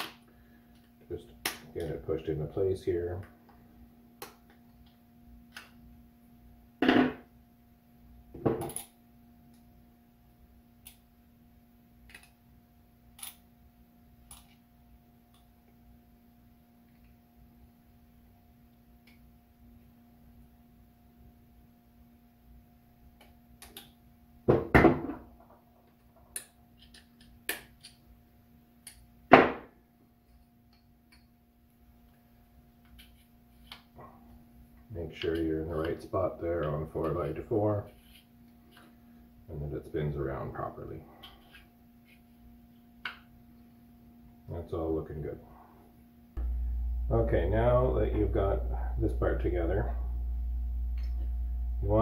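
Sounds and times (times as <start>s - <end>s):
steady low hum: 28.0s - 52.0s.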